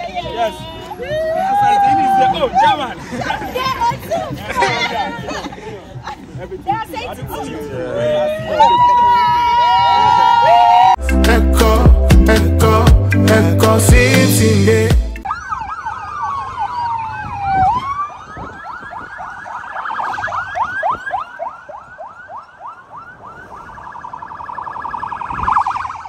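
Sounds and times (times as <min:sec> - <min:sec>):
police sirens wailing: 0:00.0 - 0:03.8, 0:07.8 - 0:12.9, 0:15.2 - 0:26.0
intro music: 0:11.0 - 0:15.3.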